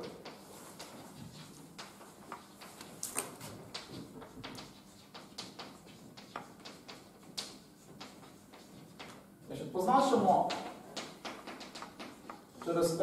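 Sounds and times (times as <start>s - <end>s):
chalk tapping on a chalkboard: 0.0s - 13.0s.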